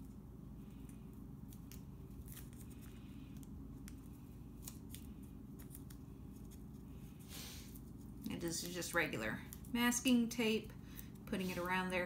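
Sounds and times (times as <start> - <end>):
tape crackling and ticking: 0.0 - 6.9, 7.7 - 11.4
low steady hum: 0.0 - 12.0.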